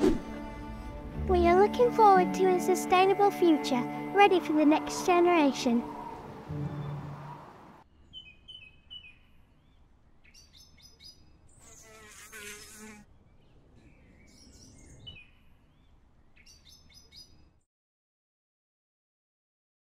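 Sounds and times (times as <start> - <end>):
small birds chirping: 5.7 - 17.6
bee buzzing: 11.6 - 13.0.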